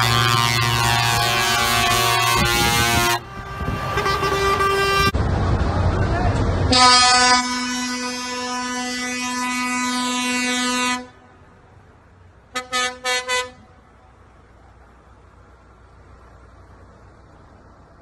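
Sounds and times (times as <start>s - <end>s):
truck air horn: 0.0s - 5.2s, 6.7s - 11.2s, 12.5s - 13.7s.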